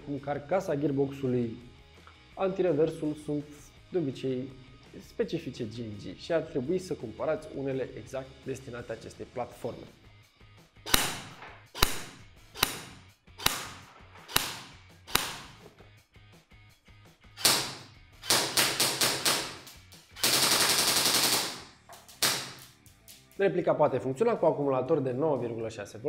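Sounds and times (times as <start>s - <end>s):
airsoft rifle firing: 10.9s - 15.6s, 17.4s - 22.8s.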